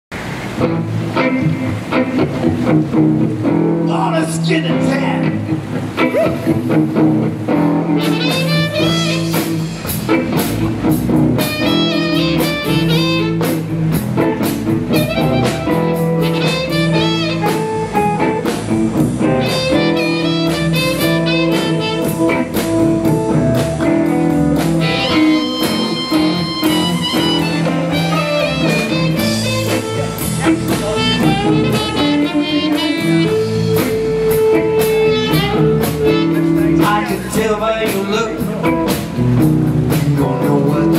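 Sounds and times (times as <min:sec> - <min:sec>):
bass guitar: 0:00.1 - 0:40.9
electric guitars: 0:00.2 - 0:40.9
drum kit beat: 0:04.8 - 0:40.9
harmonica: 0:24.8 - 0:36.8.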